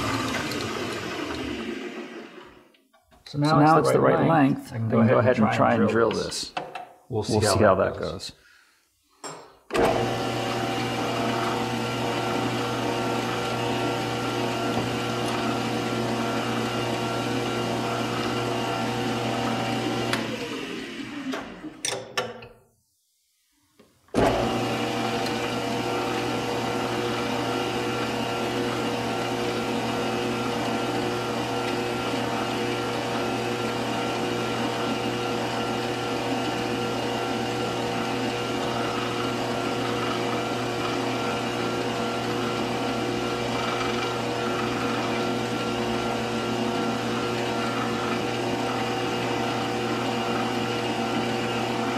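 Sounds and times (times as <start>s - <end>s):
metal lathe humming and whining: 24.2s - 51.9s
motor winding down: 27.6s - 51.9s
drill boring into metal: 29.5s - 51.9s.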